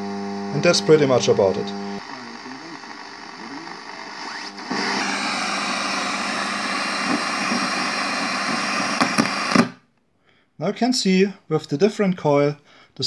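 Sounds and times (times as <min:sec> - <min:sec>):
radio static hiss: 0:00.4 - 0:09.8
faint wavering radio tones: 0:00.8 - 0:09.6.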